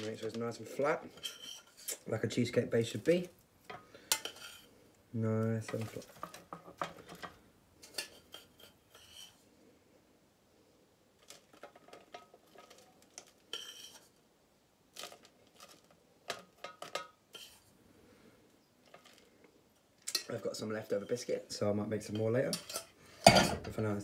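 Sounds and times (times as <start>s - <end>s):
metal spoon scraping saucepan: 0.0s - 4.8s, 5.6s - 9.4s, 11.4s - 14.2s, 15.0s - 17.7s, 20.0s - 23.8s.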